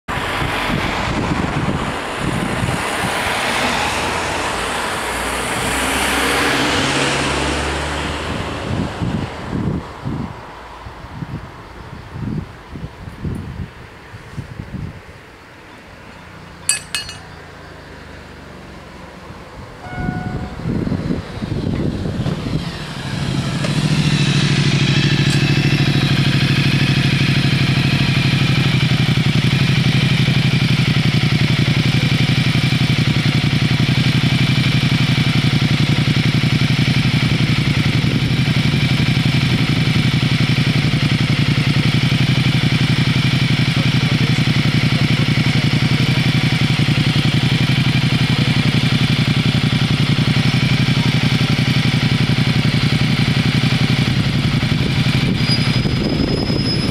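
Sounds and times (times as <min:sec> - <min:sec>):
engine running steadily: 0:16.1 - 0:56.9.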